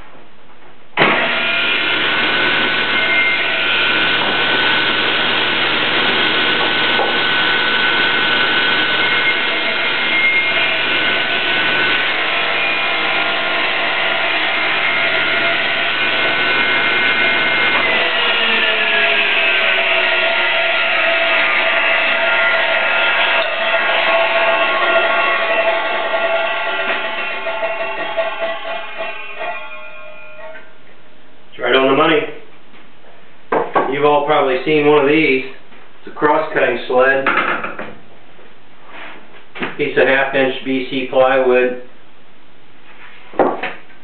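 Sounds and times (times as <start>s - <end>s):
table saw running: 1.0s - 30.6s.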